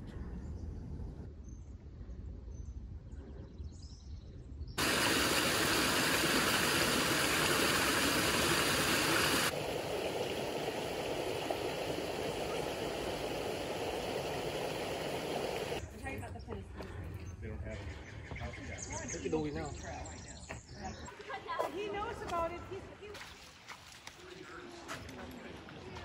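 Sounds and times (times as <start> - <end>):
creek water rushing over rocks: 4.8 - 15.8.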